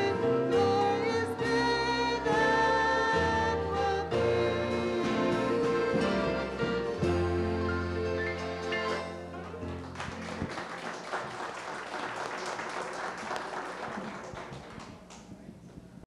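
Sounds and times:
held gospel chord: 0.0s - 10.1s
audience applauding: 9.3s - 15.3s.

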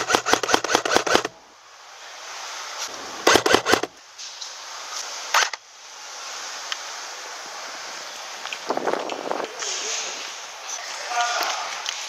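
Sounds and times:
airsoft gun firing: 0.0s - 1.4s, 3.2s - 3.9s.

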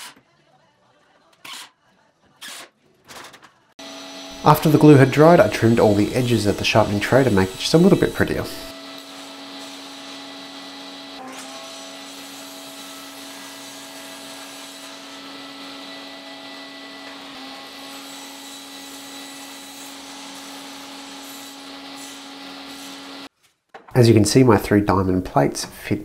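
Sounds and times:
table saw cutting plywood: 3.8s - 23.3s.

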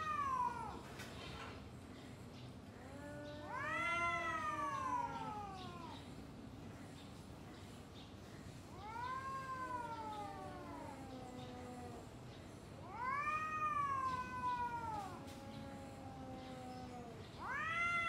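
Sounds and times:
cats yowling: 0.0s - 1.0s, 2.7s - 6.2s, 8.7s - 18.0s.

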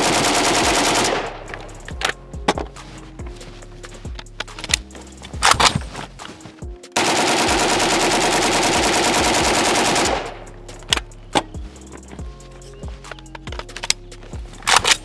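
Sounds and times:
rifle full-auto burst: 0.0s - 1.7s, 7.0s - 10.5s.

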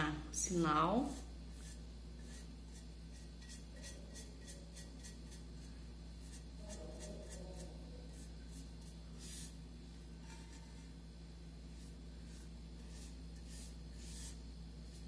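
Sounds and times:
steady low hum: 0.0s - 15.0s
paintbrush bristles scratching: 1.1s - 9.6s, 11.7s - 15.0s.

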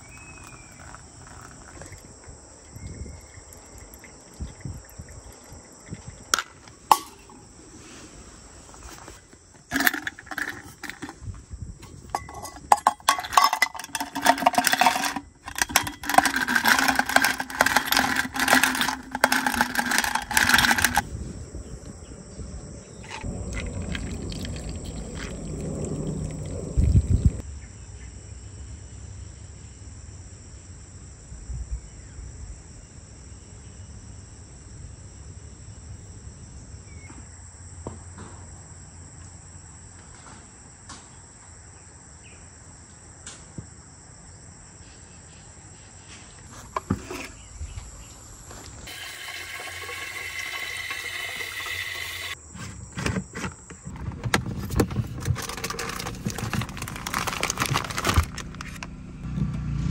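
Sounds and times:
crickets chirring: 0.0s - 37.9s, 38.5s - 59.1s
close handling clatter: 6.4s - 7.4s, 8.8s - 21.1s, 51.9s - 59.0s.

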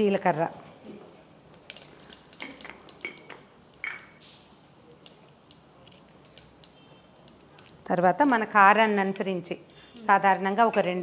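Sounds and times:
seeds crackling in hot oil: 1.4s - 3.8s, 4.9s - 8.8s.

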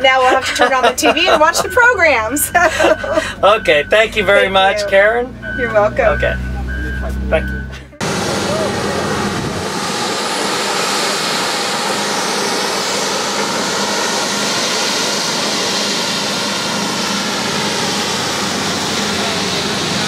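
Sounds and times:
heavy paving machinery running: 0.1s - 20.0s.

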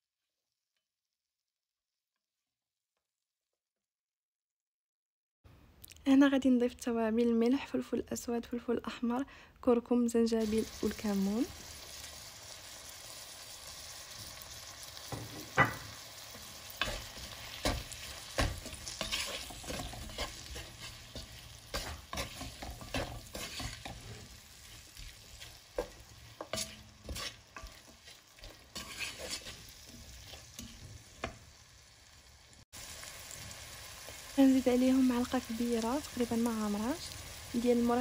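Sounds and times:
vegetables sizzling in oil: 10.2s - 38.0s
wooden spoon scraping pot: 15.1s - 31.4s.

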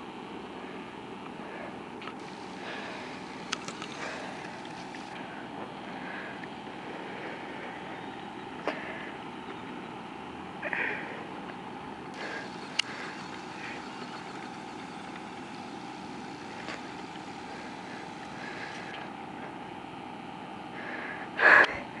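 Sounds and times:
electric motor whining: 2.2s - 5.2s, 12.2s - 19.1s.

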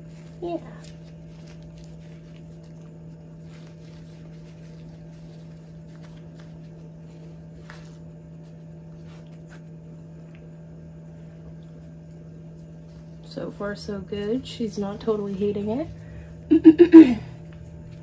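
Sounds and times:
fabric rustling: 0.0s - 9.8s
low electrical hum: 0.0s - 18.0s.

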